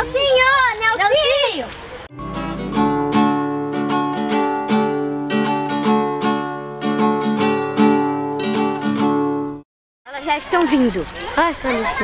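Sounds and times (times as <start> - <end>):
acoustic guitar music: 2.1 - 9.6.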